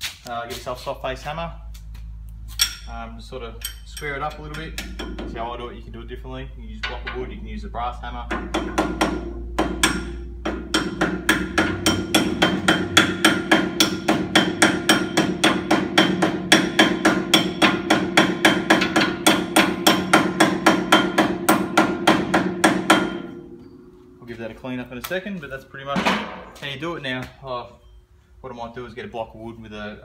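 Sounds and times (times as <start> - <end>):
hammer tapping metal: 3.6 - 5.5, 8.2 - 23.8.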